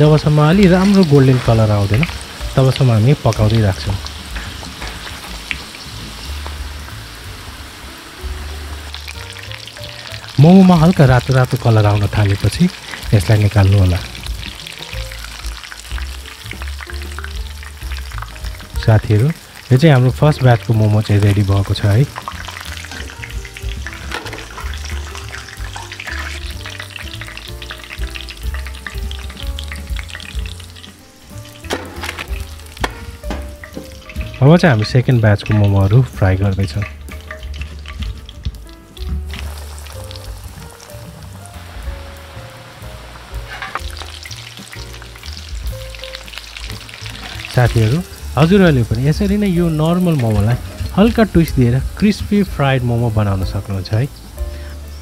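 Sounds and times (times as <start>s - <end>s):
food deep-frying in oil: 0.0s - 55.0s
soft background music with bassline: 0.0s - 55.0s
slotted spoon stirring in pan: 43.4s - 44.3s.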